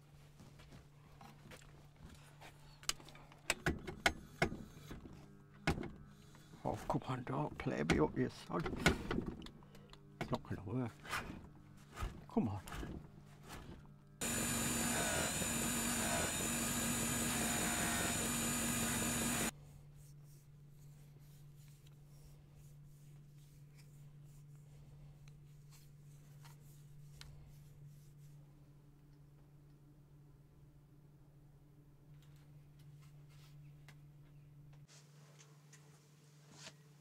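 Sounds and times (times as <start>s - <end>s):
electric machine running with whine: 14.2s - 19.5s.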